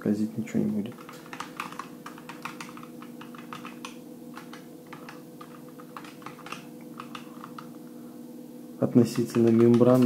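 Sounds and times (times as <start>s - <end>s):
keyboard key clicks: 1.0s - 7.7s.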